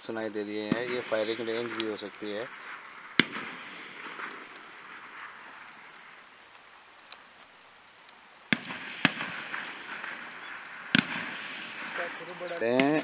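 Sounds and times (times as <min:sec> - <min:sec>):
distant gunshots: 0:00.6 - 0:06.1, 0:08.5 - 0:13.0.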